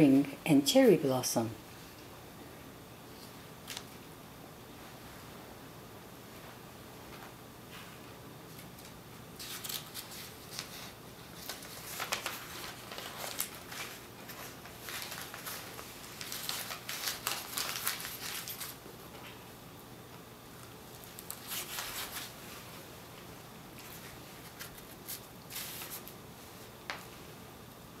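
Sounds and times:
paper rustling and crinkling: 0:08.5 - 0:19.4, 0:20.6 - 0:22.6, 0:23.8 - 0:26.2.

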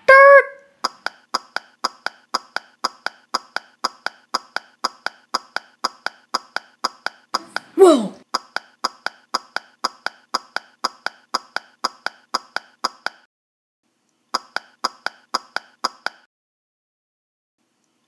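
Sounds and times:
quick running footsteps: 0:00.8 - 0:13.3.

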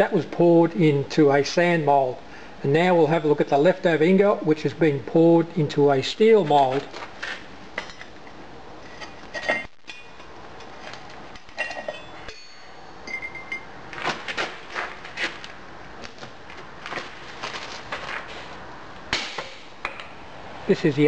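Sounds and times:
metal tools clinking: 0:08.9 - 0:10.3, 0:11.4 - 0:13.7.

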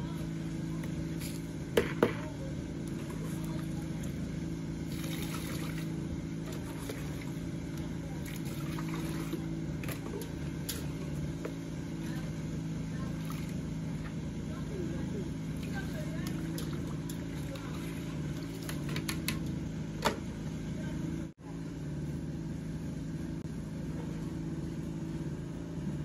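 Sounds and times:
low mechanical hum: 0:00.0 - 0:26.0
liquid splashing and trickling: 0:04.8 - 0:07.5, 0:08.2 - 0:11.0, 0:15.5 - 0:19.0.

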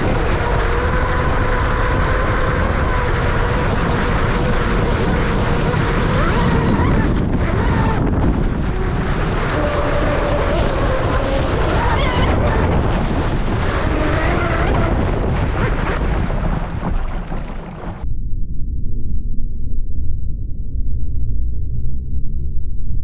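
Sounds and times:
electric motor whining: 0:00.0 - 0:16.0
rush of water and wind: 0:00.0 - 0:18.0.

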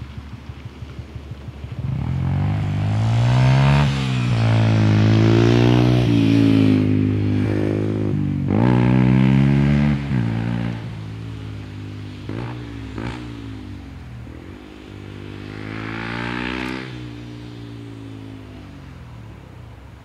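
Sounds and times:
loud engine accelerating: 0:01.8 - 0:11.1, 0:12.2 - 0:14.0, 0:14.9 - 0:18.4.

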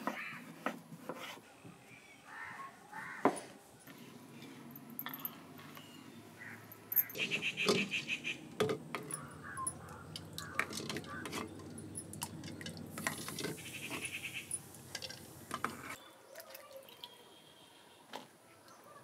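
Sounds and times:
light clinks: 0:04.7 - 0:05.9, 0:09.0 - 0:13.5
small water splashes: 0:16.3 - 0:17.2.

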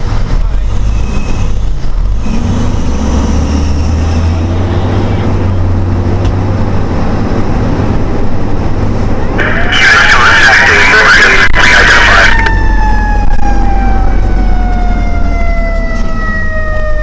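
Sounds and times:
road noise: 0:00.0 - 0:17.0.

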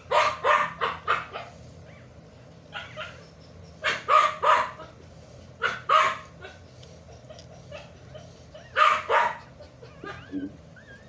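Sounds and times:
dog barking: 0:00.1 - 0:01.5, 0:02.7 - 0:03.2, 0:03.8 - 0:05.0, 0:05.6 - 0:06.6, 0:07.7 - 0:10.4.

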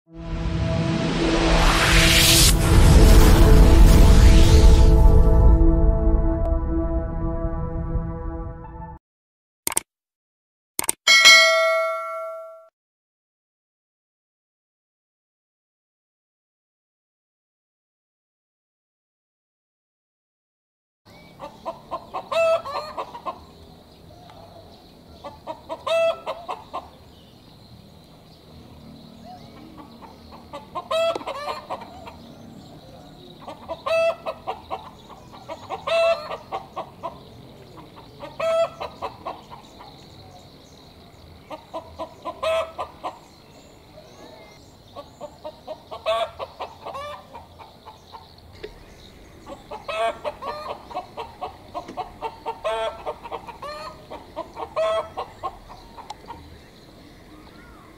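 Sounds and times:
chicken cackling: 0:21.4 - 0:23.5, 0:25.2 - 0:27.0, 0:29.6 - 0:32.2, 0:33.4 - 0:40.0, 0:41.4 - 0:43.3, 0:44.9 - 0:48.3, 0:49.4 - 0:56.6.

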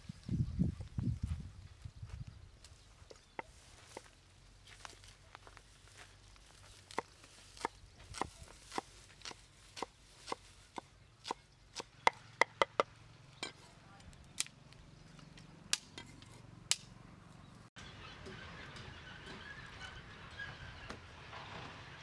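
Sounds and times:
cleaver chopping on wooden board: 0:07.6 - 0:12.9.

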